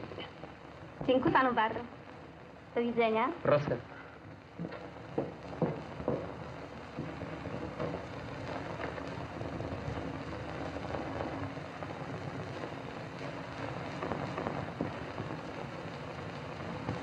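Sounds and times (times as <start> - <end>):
film soundtrack hiss and crackle: 0.0 - 17.0.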